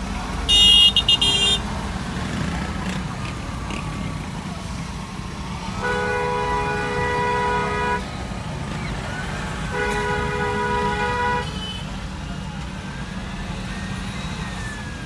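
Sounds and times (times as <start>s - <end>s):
low rumble of engines: 0.0s - 15.0s
high-pitched car horn toots: 0.5s - 1.6s.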